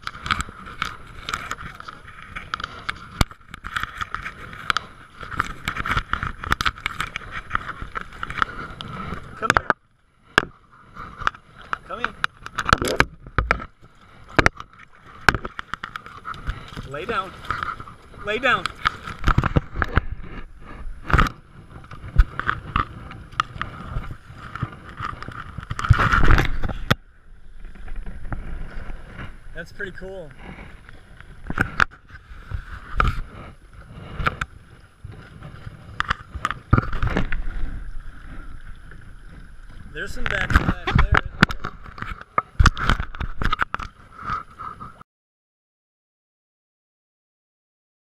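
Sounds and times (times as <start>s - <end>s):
water splashing against hull: 0.0s - 45.0s
sharp clicks and knocks: 11.2s - 17.8s.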